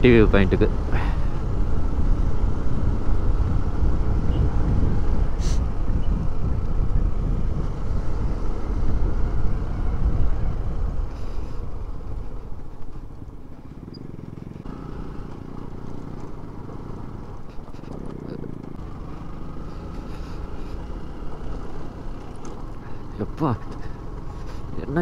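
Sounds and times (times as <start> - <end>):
wind rushing over microphone: 0.0 - 13.5
motorcycle engine running: 0.0 - 25.0.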